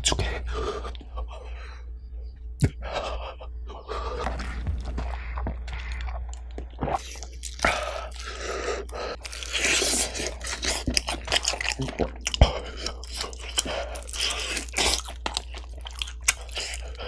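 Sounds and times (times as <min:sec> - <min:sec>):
crunchy bite and chewing: 0:04.2 - 0:17.0.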